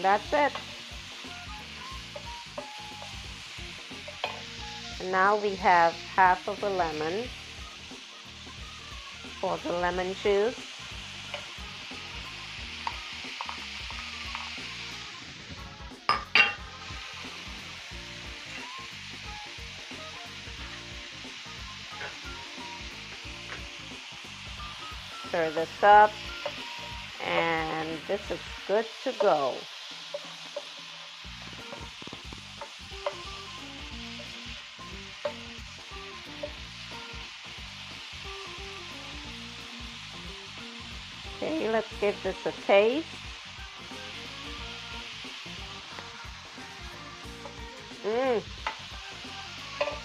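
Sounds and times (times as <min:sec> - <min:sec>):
vegetables sizzling in a frying pan: 0:00.0 - 0:50.0
spatula knocking against pan: 0:04.1 - 0:04.5.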